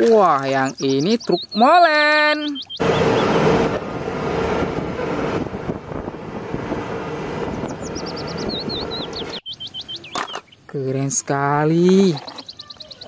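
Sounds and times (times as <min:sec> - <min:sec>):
diesel truck engine roar: 0:02.8 - 0:09.4.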